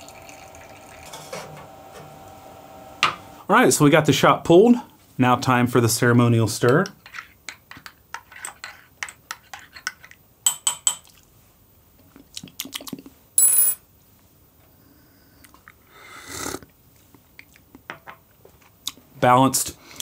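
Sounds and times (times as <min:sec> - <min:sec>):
person slurping coffee: 0:16.0 - 0:16.7.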